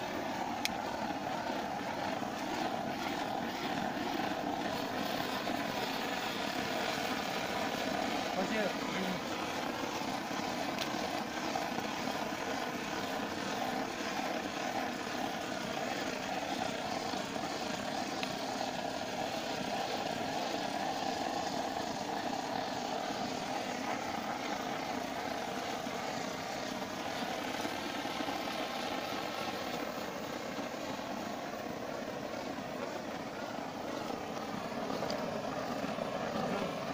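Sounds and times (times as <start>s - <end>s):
blowlamp flame rushing: 0.0s - 36.9s.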